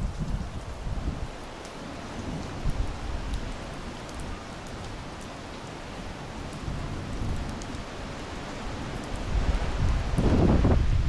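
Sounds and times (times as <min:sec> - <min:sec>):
raindrop ticks: 0:00.0 - 0:00.8, 0:01.5 - 0:05.8, 0:06.4 - 0:07.9
steady rain falling: 0:00.0 - 0:11.0.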